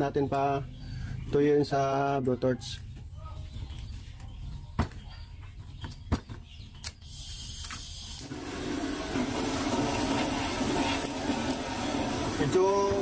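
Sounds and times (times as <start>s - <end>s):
gas hissing: 7.0s - 13.0s
torch flame rushing hiss: 7.1s - 13.0s.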